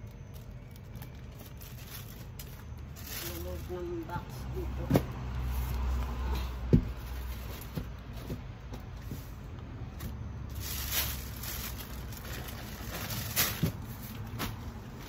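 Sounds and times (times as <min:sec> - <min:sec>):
rustling: 0:10.0 - 0:15.0.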